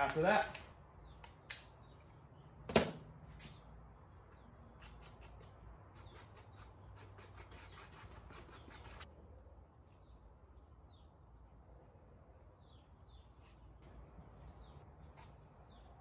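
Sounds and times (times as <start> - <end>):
gloved hand scraping and rubbing: 4.6 - 9.1, 13.1 - 15.9.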